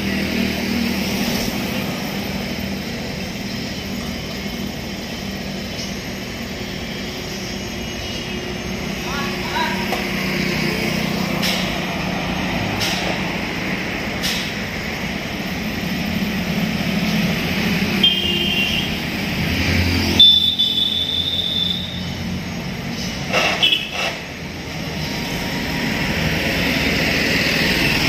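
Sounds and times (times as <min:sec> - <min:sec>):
road traffic: 0:00.0 - 0:28.0
vehicle horn: 0:18.0 - 0:19.0, 0:20.2 - 0:22.0, 0:23.5 - 0:24.0.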